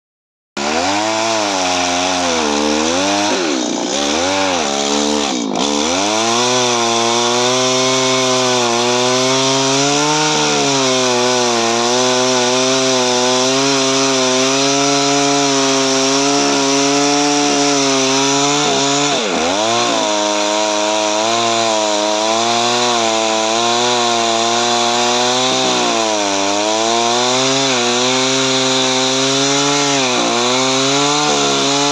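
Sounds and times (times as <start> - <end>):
chainsaw cutting branch: 0.6 - 31.9.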